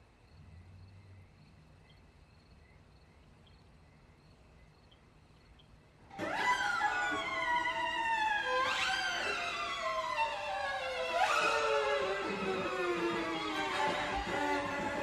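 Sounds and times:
night insects chirping: 0.0s - 6.1s.

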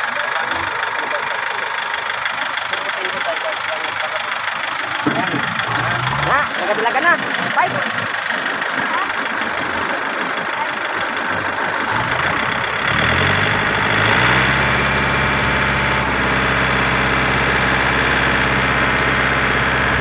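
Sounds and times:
diesel engine starting and idling: 0.0s - 20.0s.

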